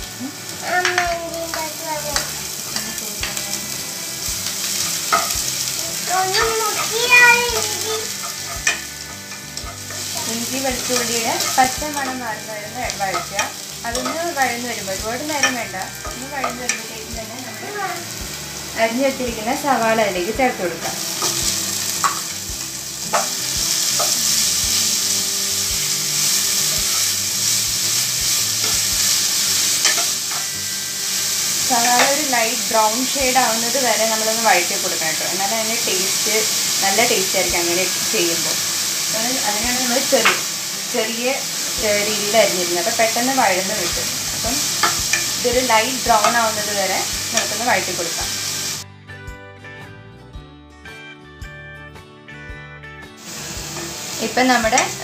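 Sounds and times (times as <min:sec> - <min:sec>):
garlic sizzling in oil: 0:00.0 - 0:48.8, 0:53.2 - 0:55.0
spatula clicking on pan: 0:00.7 - 0:03.5, 0:04.4 - 0:14.6, 0:15.2 - 0:17.0, 0:21.2 - 0:22.4, 0:25.8 - 0:32.3, 0:40.1 - 0:40.5, 0:43.8 - 0:46.4.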